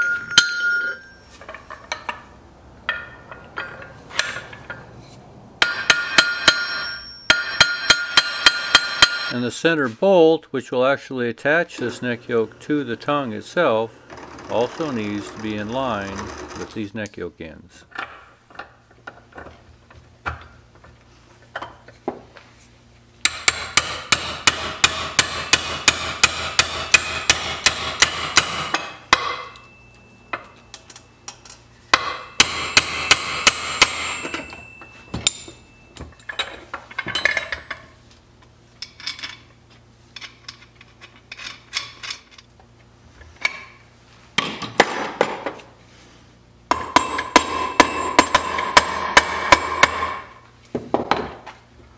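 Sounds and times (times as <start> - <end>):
hammer striking iron: 0.0 - 1.1, 5.6 - 9.4, 23.2 - 29.8, 31.9 - 35.6, 46.7 - 50.4.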